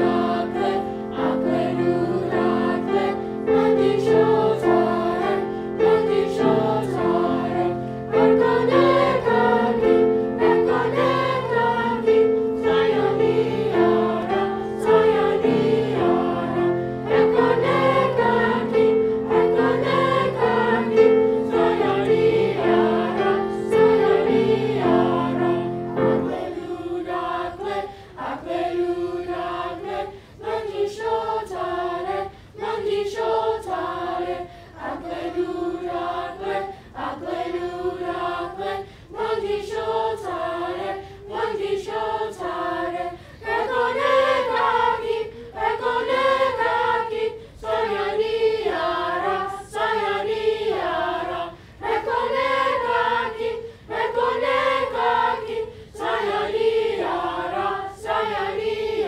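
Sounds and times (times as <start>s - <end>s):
children's choir singing: 0.0s - 59.0s.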